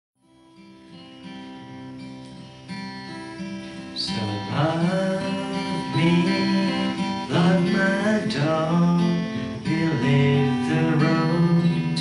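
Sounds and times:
acoustic guitar playing: 0.2s - 12.0s
person singing: 3.2s - 12.0s.

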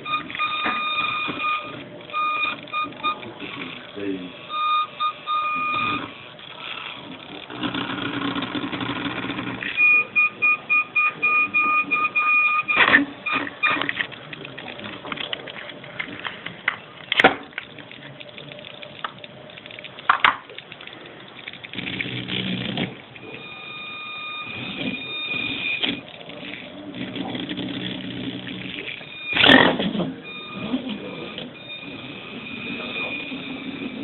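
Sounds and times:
high beeping tone: 0.0s - 3.4s, 4.3s - 6.2s, 9.7s - 13.9s, 23.2s - 26.0s, 29.0s - 34.0s.

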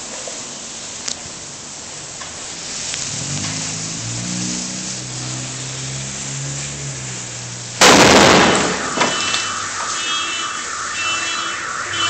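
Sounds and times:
dynamite explosion bang: 7.8s - 12.0s
car alarm sounding: 8.3s - 12.0s.

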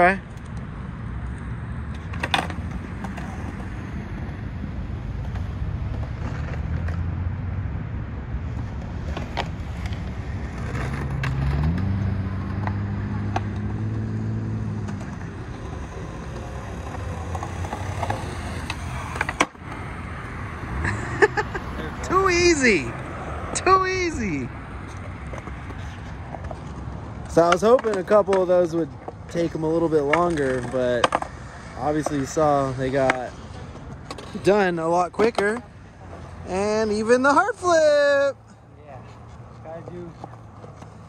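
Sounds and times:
skateboard wheels rolling on concrete: 0.0s - 41.0s
vehicle engine hum: 0.0s - 41.0s
skateboard clacks: 14.6s - 21.6s, 24.6s - 38.0s.

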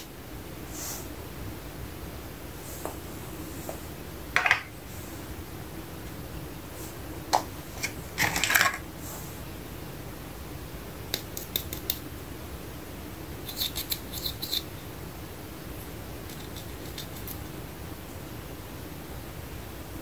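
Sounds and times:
plastic toy pieces clattering: 8.2s - 8.8s.

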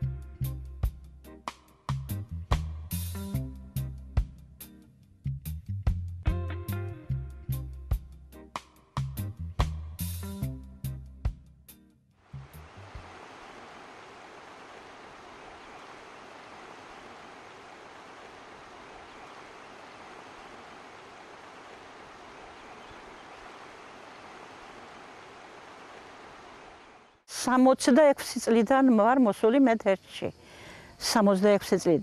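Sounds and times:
flooded river rushing: 12.3s - 27.1s.

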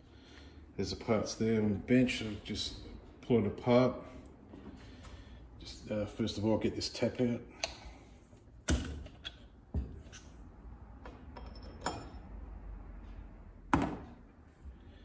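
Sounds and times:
metal tools clinking and knocking: 11.3s - 12.3s.

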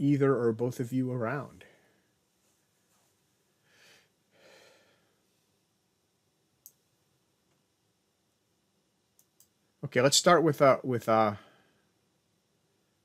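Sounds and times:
faint breaths: 1.6s - 5.6s, 11.3s - 12.0s
faint sharp click: 6.6s - 6.8s.

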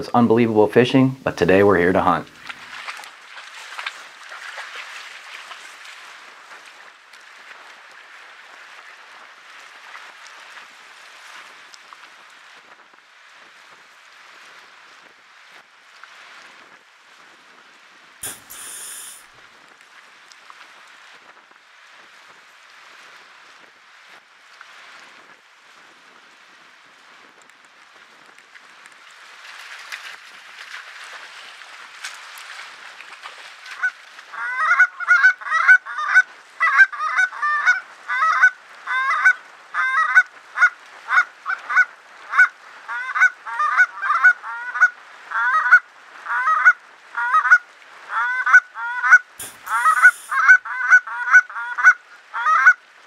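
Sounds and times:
water on a lake: 0.1s - 53.0s
wind hissing: 18.2s - 19.3s, 49.4s - 50.4s.

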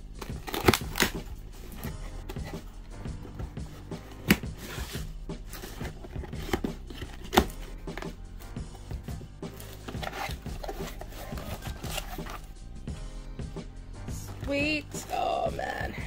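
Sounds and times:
background music: 0.0s - 16.0s
cardboard flaps rustling: 0.2s - 8.1s, 8.8s - 12.5s.

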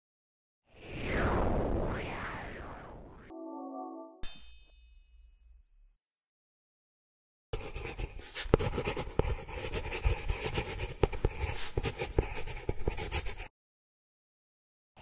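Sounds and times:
pen scribbling: 7.6s - 13.5s.

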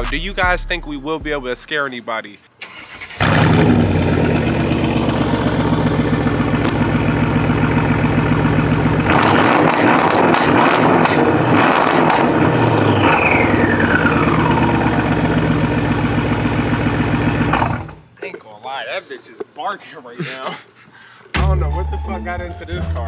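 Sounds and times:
car engine idling loudly: 3.2s - 18.0s
exhaust crackling and popping: 3.2s - 18.1s.

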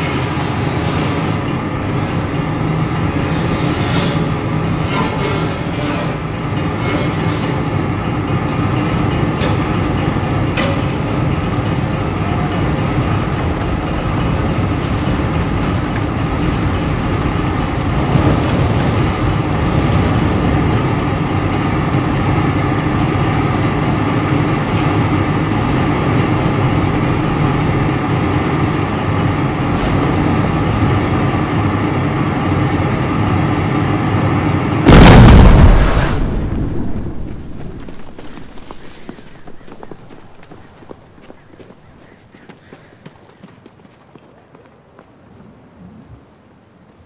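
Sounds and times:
burning gusher roaring: 0.0s - 38.2s
dynamite blast: 34.8s - 37.8s.

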